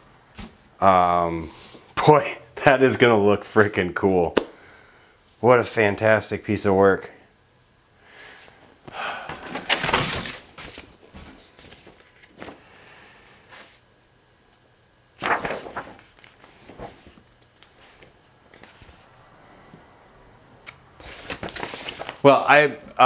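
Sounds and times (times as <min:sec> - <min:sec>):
rustling handling noises: 0:09.4 - 0:12.6, 0:15.2 - 0:19.1, 0:21.0 - 0:22.3.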